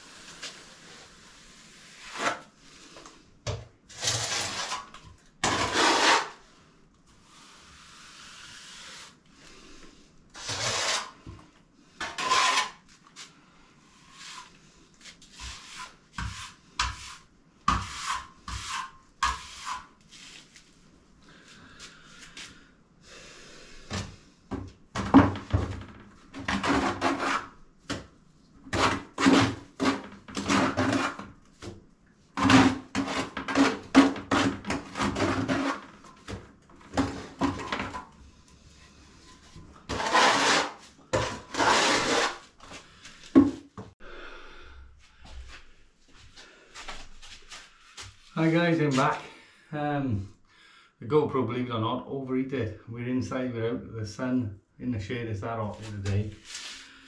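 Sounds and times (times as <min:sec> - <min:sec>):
trowel scraping render on wall: 0:00.1 - 0:02.6, 0:03.9 - 0:06.4, 0:10.4 - 0:11.3, 0:12.0 - 0:12.9, 0:13.9 - 0:20.4, 0:26.4 - 0:27.6, 0:28.7 - 0:31.4, 0:32.4 - 0:38.1, 0:38.8 - 0:42.7.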